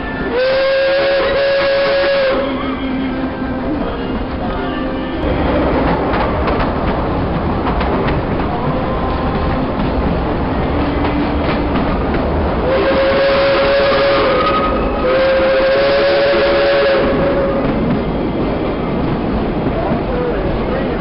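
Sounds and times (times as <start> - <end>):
steam locomotive whistle: 0.0 - 4.2, 12.6 - 17.8
moving train running noise: 0.0 - 21.0.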